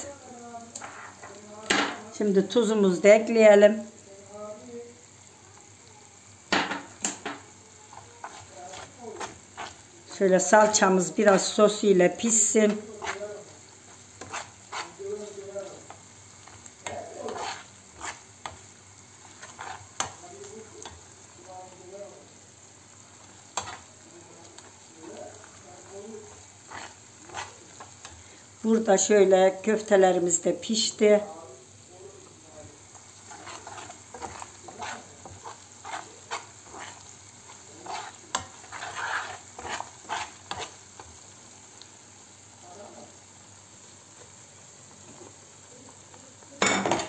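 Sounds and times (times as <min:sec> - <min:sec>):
sauce sizzling: 0:00.0 - 0:47.0
metal spoon scraping pan: 0:00.7 - 0:02.0, 0:06.5 - 0:09.8, 0:12.2 - 0:20.2, 0:23.5 - 0:23.9, 0:25.4 - 0:28.2, 0:33.2 - 0:41.1
spoon tapping pan: 0:06.5 - 0:09.8, 0:15.7 - 0:18.7, 0:19.3 - 0:21.1, 0:46.6 - 0:47.0.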